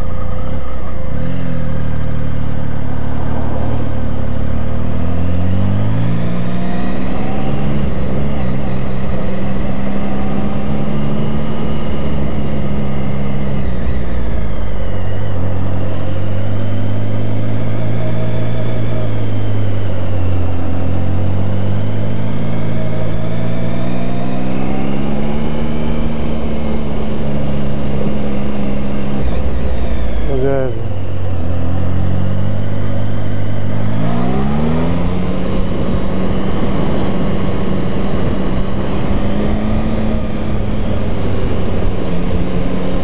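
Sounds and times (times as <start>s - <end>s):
motorcycle engine running: 0.0s - 43.0s
wind noise on microphone: 33.8s - 43.0s.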